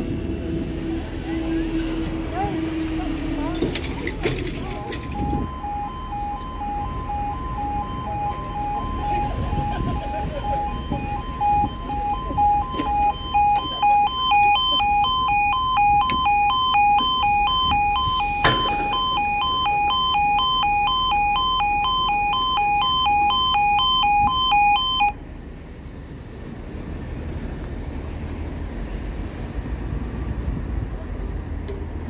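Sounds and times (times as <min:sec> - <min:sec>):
level crossing two-tone alarm: 0:04.4 - 0:25.2.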